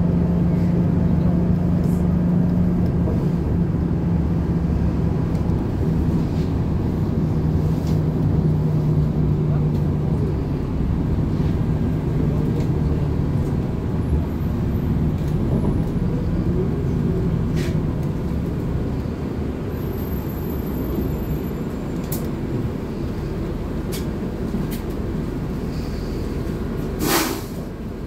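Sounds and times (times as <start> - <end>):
bus engine rumble: 0.0 - 28.0
engine hum: 0.0 - 28.0.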